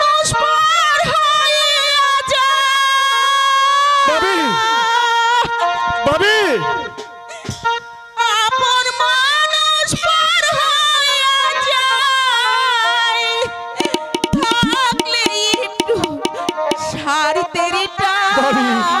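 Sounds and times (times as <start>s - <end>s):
hand drum strokes: 13.8s - 16.9s
wavering held melody: 13.8s - 16.9s.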